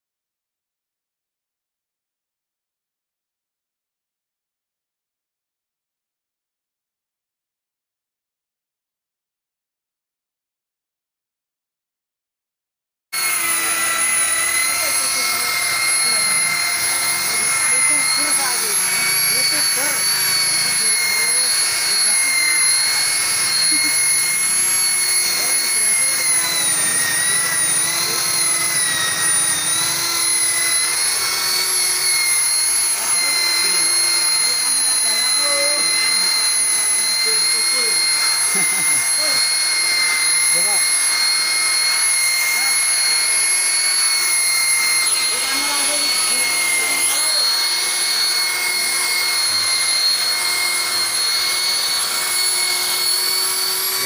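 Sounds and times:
electric car polisher whining: 13.2 - 54.0.

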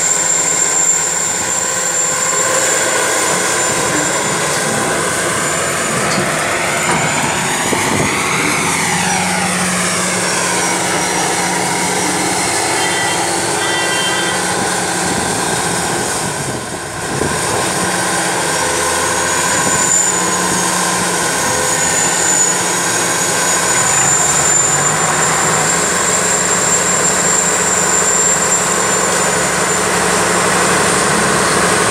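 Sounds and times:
thin high whine: 0.0 - 17.6
excavator diesel engine running: 0.0 - 31.9.

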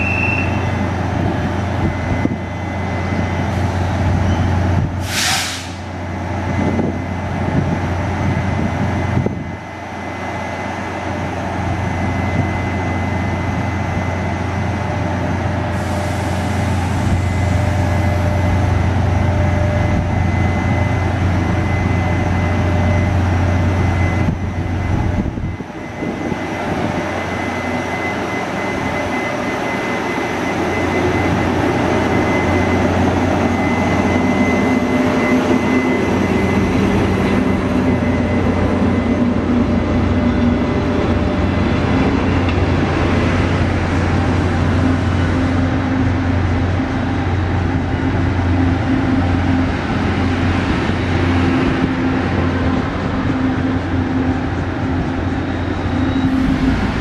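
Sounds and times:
electric locomotive drone and whine: 0.0 - 57.0
train rolling rumble: 0.0 - 57.0.

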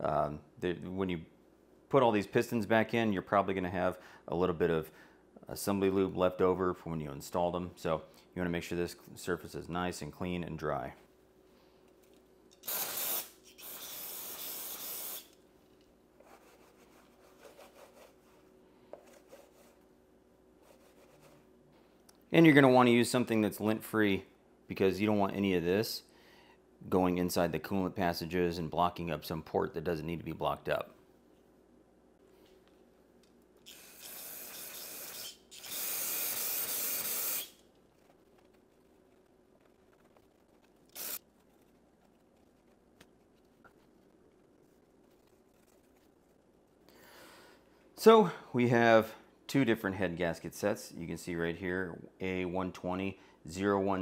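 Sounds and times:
aerosol spray hissing: 12.6 - 15.4
towel rubbing: 16.2 - 19.9.

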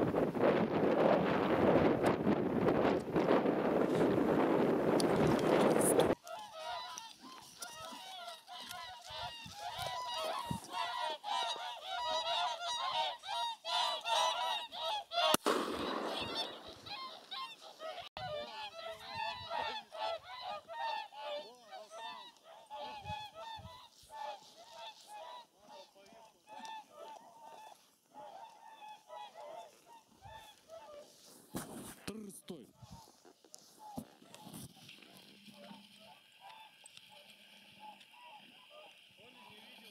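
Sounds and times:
waterfowl honking in flight: 6.1 - 31.1, 33.8 - 39.8.

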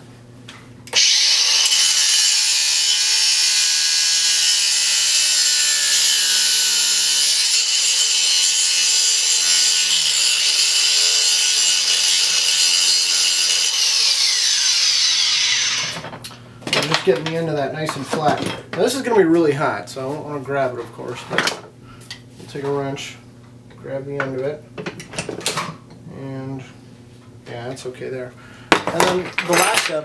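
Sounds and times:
angle grinder cutting metal: 0.9 - 16.0
grinder spinning down: 0.9 - 16.0.

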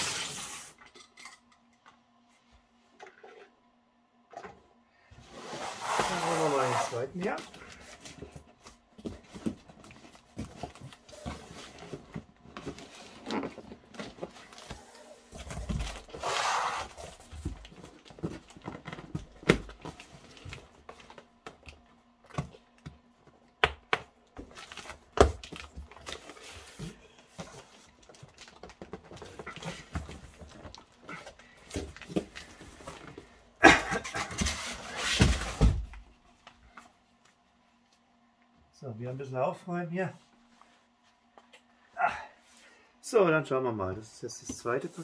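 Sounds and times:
box scraping across floor: 5.1 - 7.9, 14.4 - 17.6
cardboard box rustling and creasing: 5.2 - 21.2.

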